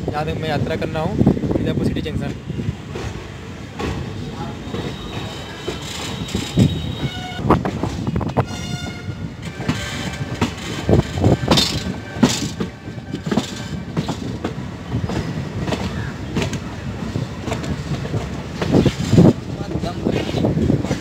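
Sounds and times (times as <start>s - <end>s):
train rumbling: 0.0s - 21.0s
train horn: 4.7s - 7.6s, 8.4s - 10.4s
wheels knocking over rail joints: 9.5s - 16.6s.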